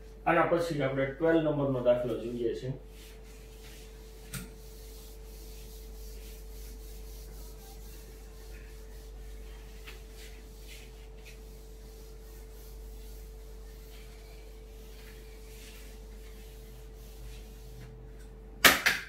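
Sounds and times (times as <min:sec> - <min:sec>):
electrical hum: 0:00.0 - 0:18.7
eraser rubbing on whiteboard: 0:02.9 - 0:17.9.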